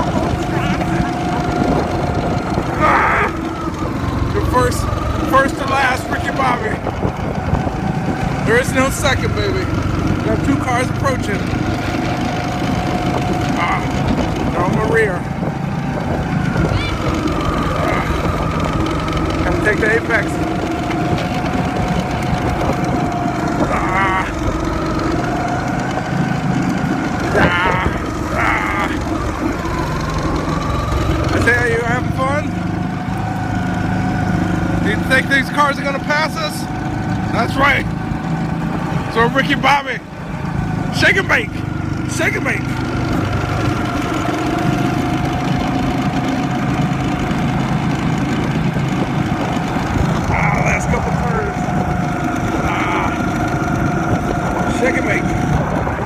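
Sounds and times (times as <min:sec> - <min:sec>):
wind on microphone: 0:00.0 - 0:10.8, 0:11.5 - 0:26.5, 0:27.1 - 0:30.4, 0:47.7 - 0:56.0
go-kart engine running: 0:00.0 - 0:56.0
high wavering squeals: 0:12.2 - 0:33.8.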